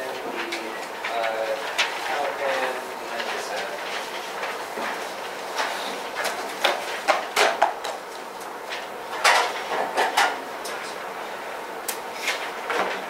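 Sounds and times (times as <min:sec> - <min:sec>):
paper rustling: 0:00.1 - 0:08.9.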